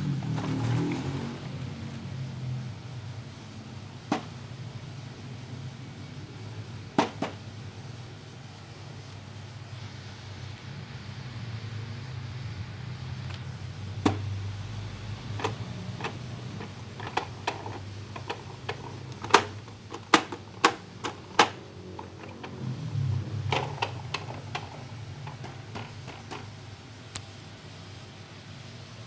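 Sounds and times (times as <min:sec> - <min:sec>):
plastic toy clicks and knocks: 0:15.4 - 0:22.6, 0:23.4 - 0:26.5.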